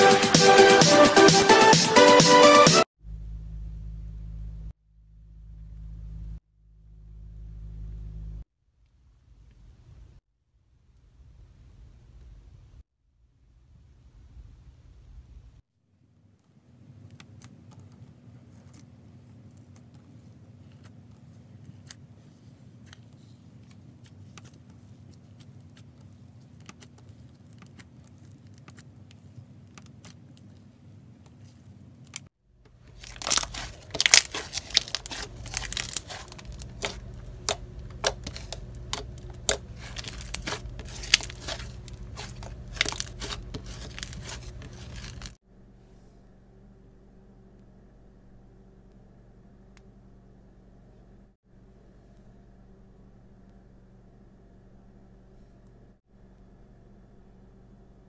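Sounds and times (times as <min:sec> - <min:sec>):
slime crackling and popping: 0:32.8 - 0:45.4.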